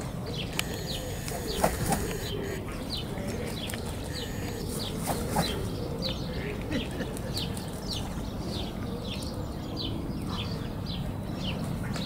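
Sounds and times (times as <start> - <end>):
small bird chirping: 0.4 - 3.1, 4.0 - 5.5
wing flaps: 0.6 - 2.6.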